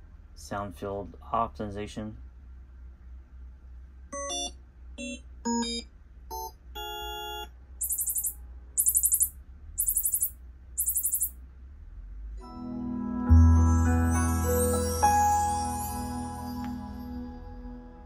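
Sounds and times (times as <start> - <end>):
short electronic beeps: 6.8 - 11.4
rapid high-pitched ticking: 7.8 - 11.3.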